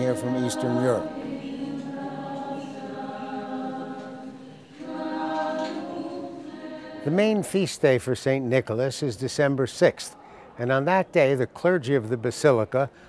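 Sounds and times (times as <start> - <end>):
group chanting unaccompanied: 0.0 - 7.5.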